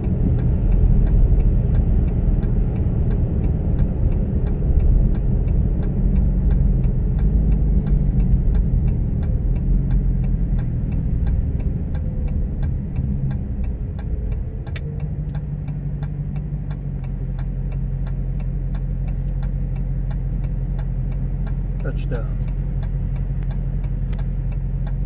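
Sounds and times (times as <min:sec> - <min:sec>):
car engine and road rumble: 0:00.0 - 0:25.0
light ticking: 0:00.0 - 0:25.0
sharp click: 0:04.5 - 0:21.6, 0:22.4 - 0:25.0.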